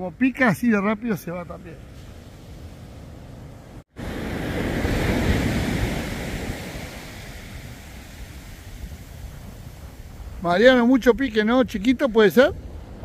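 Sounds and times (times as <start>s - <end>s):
surf breaking on beach: 1.3s - 11.4s
wind on microphone: 1.7s - 13.0s.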